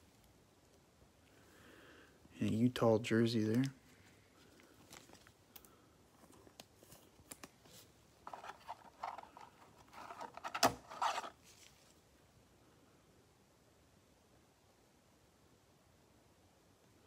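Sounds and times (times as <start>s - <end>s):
thin plastic rustling: 3.5s - 5.4s, 6.2s - 12.0s.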